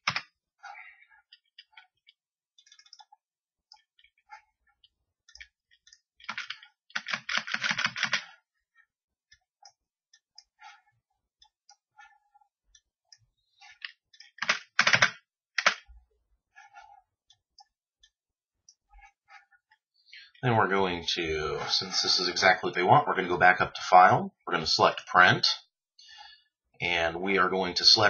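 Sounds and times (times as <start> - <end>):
keyboard typing: 0.0 - 0.3, 1.3 - 4.4, 5.2 - 8.4, 13.6 - 15.9.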